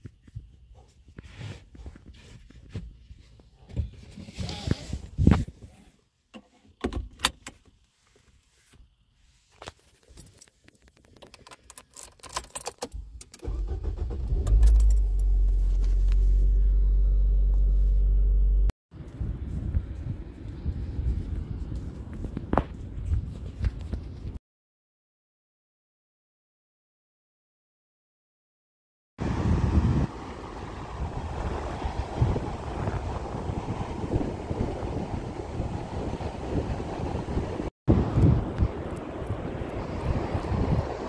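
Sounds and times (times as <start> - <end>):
car keys jangling: 11.2 - 15.3
car engine starting and running: 12.2 - 18.7.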